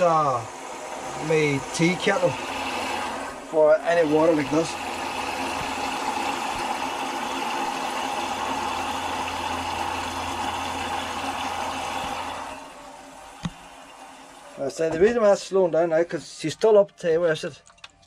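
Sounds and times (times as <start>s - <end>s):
water spraying into a kettle: 0.0s - 14.7s.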